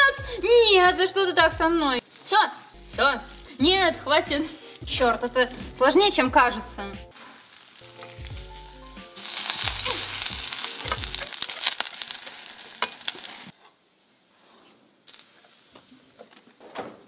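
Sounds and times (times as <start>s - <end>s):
pancakes sizzling in oil: 2.0s - 4.8s, 7.1s - 13.6s, 15.1s - 16.2s.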